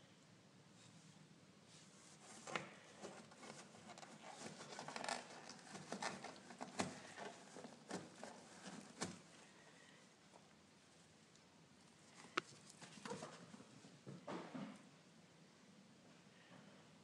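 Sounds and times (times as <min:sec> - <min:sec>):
kittens clawing at cardboard box: 0:02.4 - 0:09.3.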